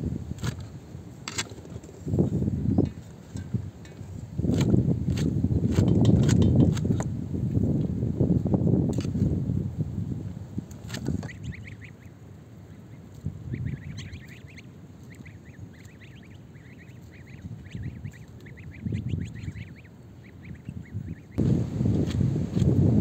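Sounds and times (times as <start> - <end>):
goslings peeping: 10.8 - 21.4.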